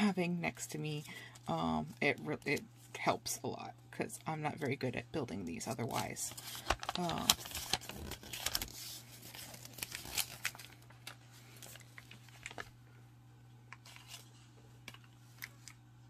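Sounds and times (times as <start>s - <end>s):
paper rustling and crinkling: 5.7s - 12.8s, 13.7s - 15.8s.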